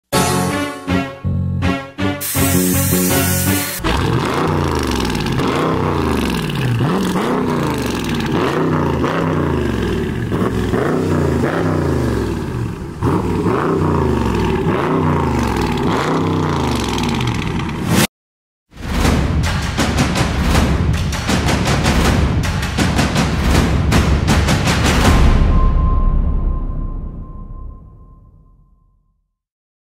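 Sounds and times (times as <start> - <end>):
car engine revving in blips: 3.8 - 17.9.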